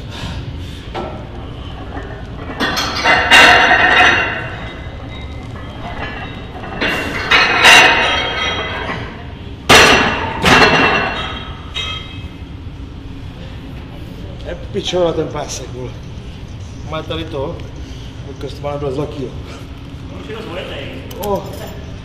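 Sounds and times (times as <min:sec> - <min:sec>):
gym weight plates clanking: 0:01.8 - 0:12.2.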